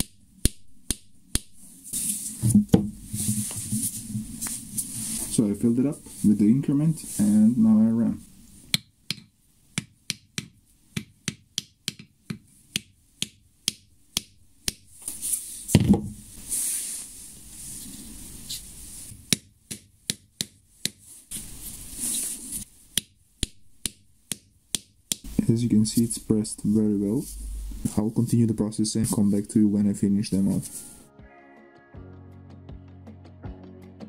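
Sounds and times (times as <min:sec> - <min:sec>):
handling noise: 0:02.0 - 0:06.4.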